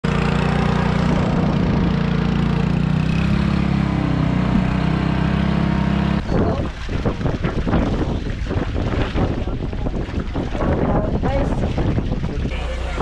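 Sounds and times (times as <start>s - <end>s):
boat engine running: 0.0s - 13.0s
wind buffeting microphone: 6.2s - 13.0s.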